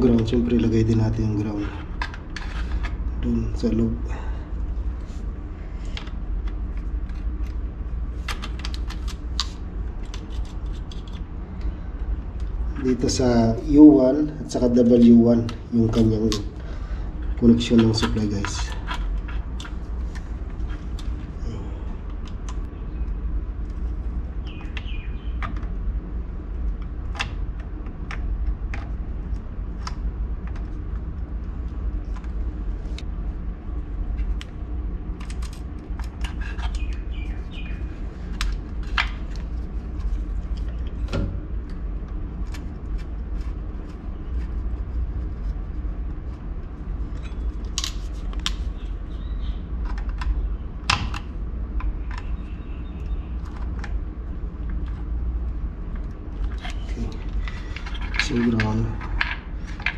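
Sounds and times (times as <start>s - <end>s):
steady low rumble: 0.0s - 59.9s
bird chirps: 24.4s - 25.4s, 36.6s - 37.9s, 48.7s - 49.7s, 52.2s - 53.4s.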